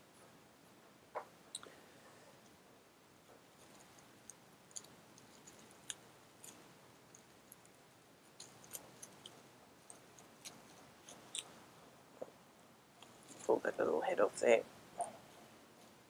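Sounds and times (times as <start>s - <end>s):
bubble wrap crinkling: 3.5s - 11.6s.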